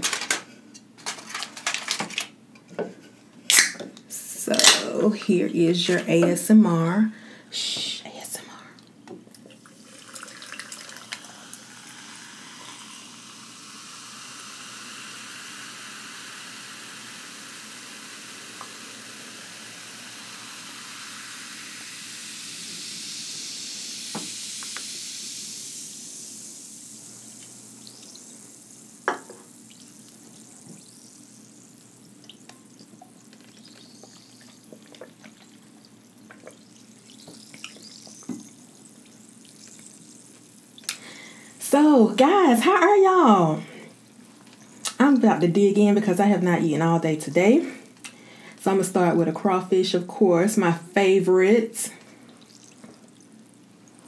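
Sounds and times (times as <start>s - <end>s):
sparkling water fizzing in a cup: 9.3s - 43.4s, 50.3s - 54.0s.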